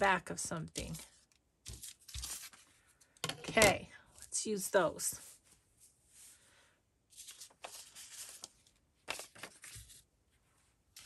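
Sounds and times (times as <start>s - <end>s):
paper rustling: 0.7s - 3.0s, 7.1s - 10.1s.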